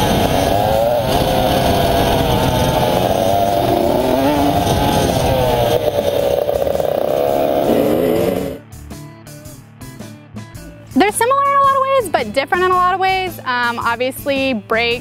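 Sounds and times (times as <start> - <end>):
dirt bike engines revving: 0.0 - 8.6.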